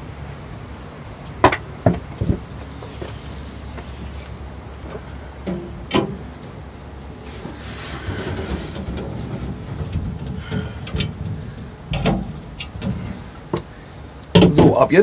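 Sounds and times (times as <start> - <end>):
metal tray scraping slide: 7.2 - 13.3.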